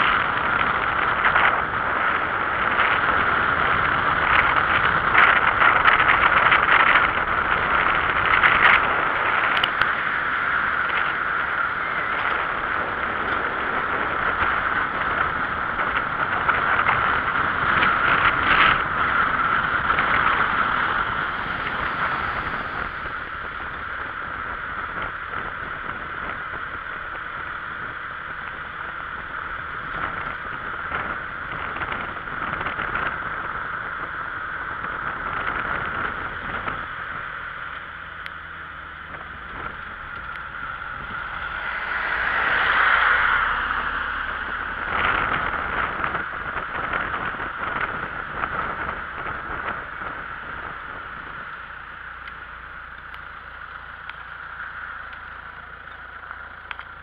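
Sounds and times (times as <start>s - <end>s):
vehicle road and wind noise: 0.0s - 57.0s.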